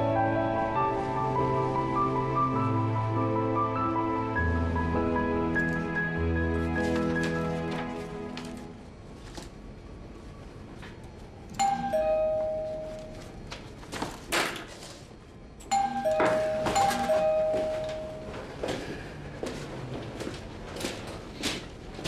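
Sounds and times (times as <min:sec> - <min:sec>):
two-tone doorbell chime: 0:11.6 - 0:13.4, 0:15.7 - 0:18.8.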